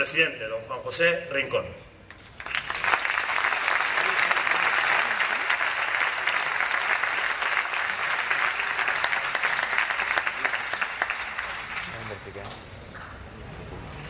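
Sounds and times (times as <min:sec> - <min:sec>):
audience applauding: 0:02.4 - 0:12.4.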